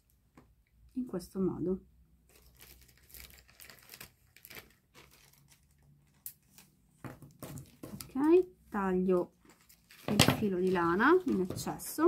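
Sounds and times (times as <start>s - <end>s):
soft yarn rustling and handling: 0.0s - 12.0s.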